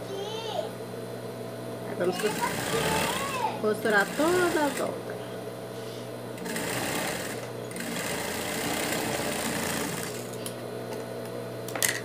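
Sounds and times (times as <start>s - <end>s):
sewing machine stitching: 2.2s - 4.9s, 6.4s - 10.3s.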